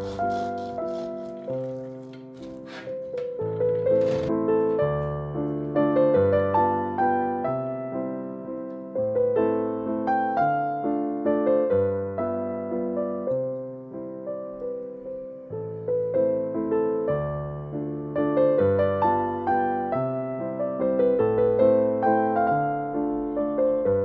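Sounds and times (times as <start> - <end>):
gentle piano music: 0.0 - 24.0.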